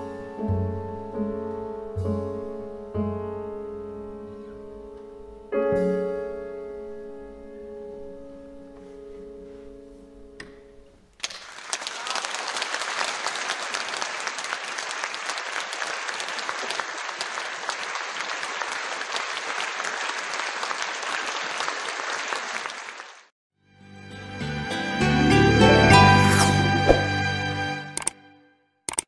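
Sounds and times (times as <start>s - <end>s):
audience applauding: 11.2s - 23.3s.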